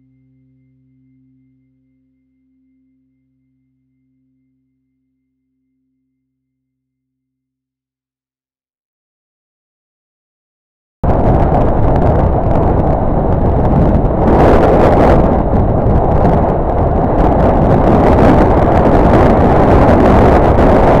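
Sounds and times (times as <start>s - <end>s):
wind buffeting microphone: 11.0s - 21.0s
motorcycle engine and road noise: 11.5s - 21.0s.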